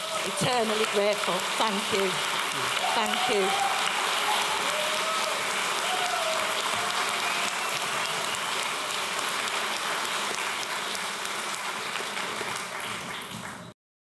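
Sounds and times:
audience applauding: 0:00.0 - 0:13.8.

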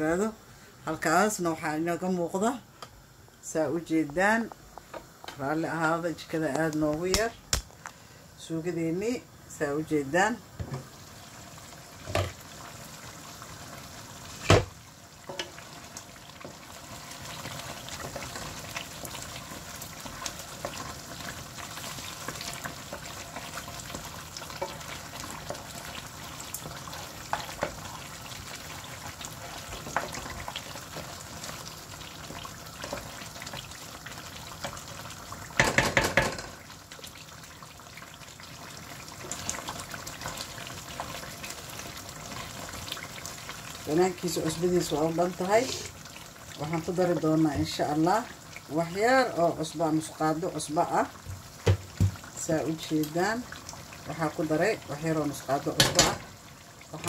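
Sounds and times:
sauce sizzling and bubbling: 0:04.4 - 0:57.0
wooden spoon stirring: 0:16.4 - 0:35.2, 0:45.4 - 0:46.0.

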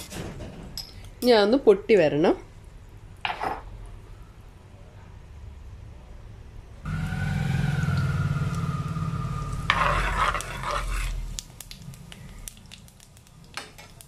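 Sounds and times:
mechanical hum with faint whine: 0:00.0 - 0:14.0
seeds spluttering in hot oil: 0:06.9 - 0:14.0
ladle scraping in a wok: 0:09.6 - 0:11.4.

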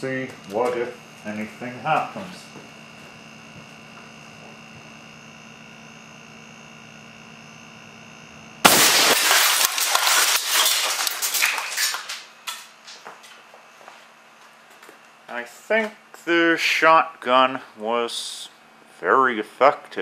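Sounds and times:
steady hum: 0:00.0 - 0:20.0
air cannon blast: 0:08.6 - 0:09.6
plastic shattering and clattering: 0:08.7 - 0:13.0.

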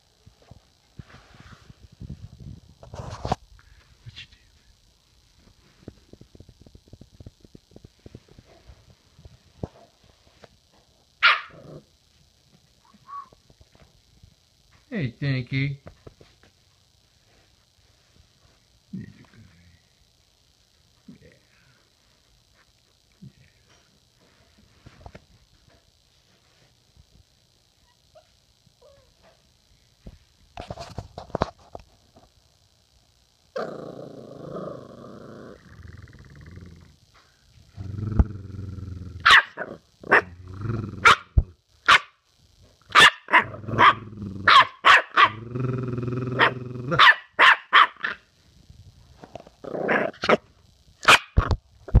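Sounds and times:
puppy barking: 0:11.2 - 0:11.6, 0:39.2 - 0:40.3, 0:41.0 - 0:41.3, 0:41.9 - 0:42.1, 0:42.9 - 0:45.4, 0:46.4 - 0:48.2, 0:51.0 - 0:51.4
puppy growling: 0:33.6 - 0:37.0, 0:37.7 - 0:41.5, 0:43.3 - 0:48.2, 0:49.3 - 0:50.5.

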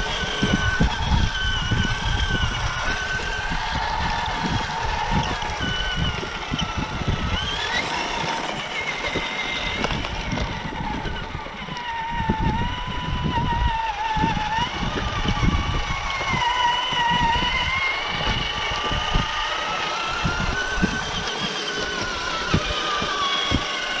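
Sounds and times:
electric motor and gears whining: 0:00.0 - 0:24.0.

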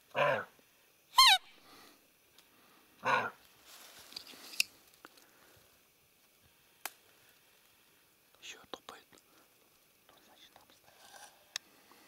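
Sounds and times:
hoarse animal call: 0:03.0 - 0:03.4
faint rustling with ticks: 0:03.4 - 0:12.0.

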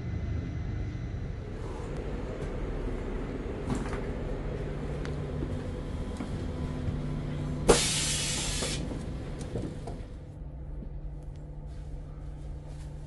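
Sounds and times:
loud hiss: 0:07.7 - 0:08.8.

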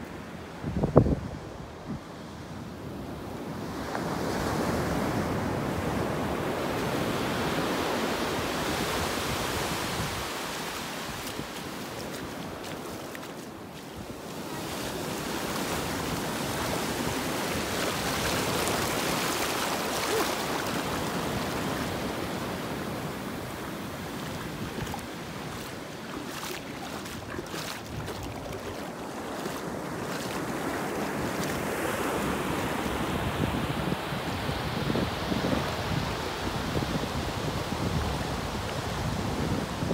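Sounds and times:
waves breaking: 0:06.6 - 0:33.1
foam washing over sand: 0:08.6 - 0:31.7.

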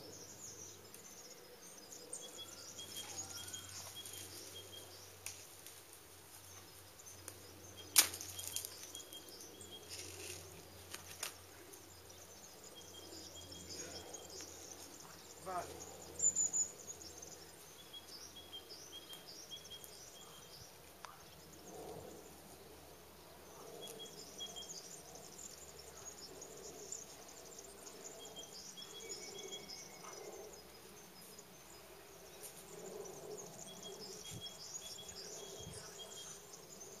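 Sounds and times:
birds chirping and singing: 0:00.0 - 0:05.3, 0:06.5 - 0:22.0, 0:32.7 - 0:37.0
faint outdoor ambience: 0:00.0 - 0:37.0.

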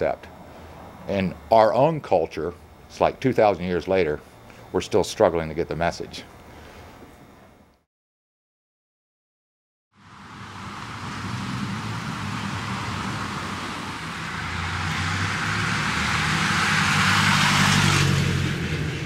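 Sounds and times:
car passing: 0:10.0 - 0:19.0.

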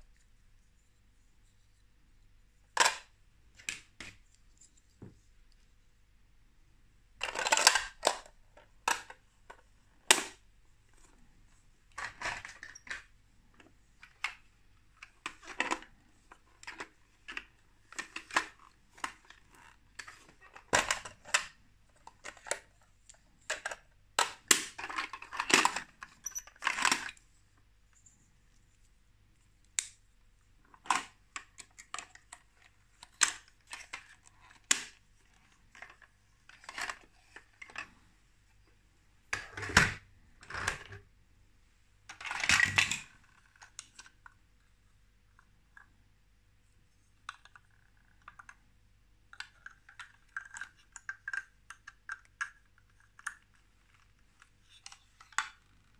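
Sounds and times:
plastic toy bricks clacking: 0:07.2 - 0:08.3, 0:49.3 - 0:54.1.

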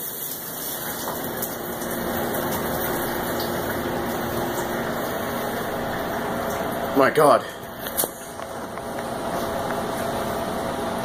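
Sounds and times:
water spraying: 0:00.0 - 0:07.0
dishwasher pump humming: 0:00.0 - 0:11.0.

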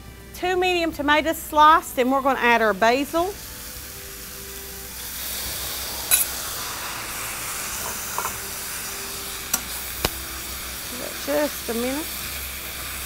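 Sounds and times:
vegetables sizzling in skillet: 0:01.2 - 0:13.0.

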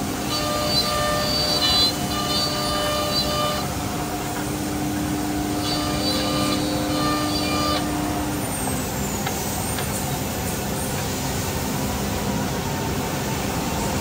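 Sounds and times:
router machine whirring: 0:00.0 - 0:09.3.

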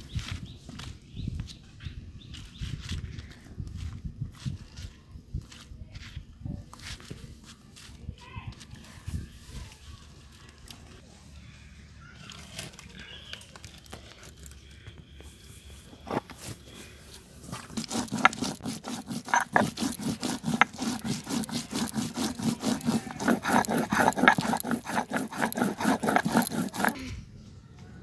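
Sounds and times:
stone roller grinding chillies: 0:17.4 - 0:27.0.

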